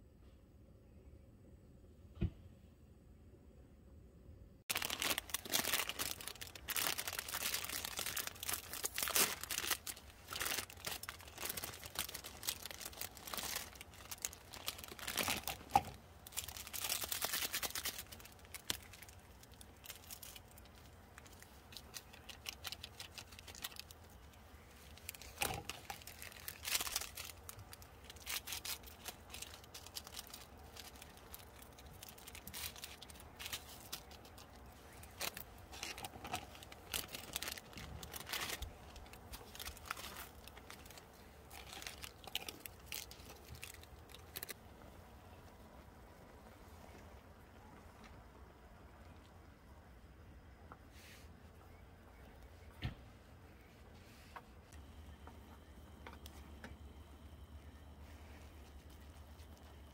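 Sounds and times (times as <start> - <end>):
plastic packet crinkling and tearing: 4.7 - 44.6.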